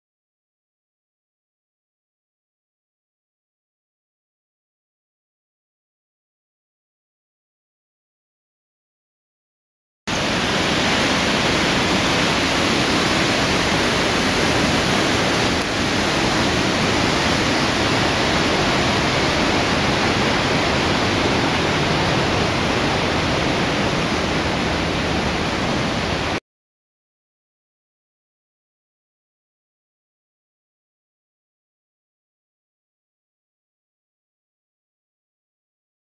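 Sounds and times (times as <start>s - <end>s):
loud rushing noise: 10.1s - 26.4s.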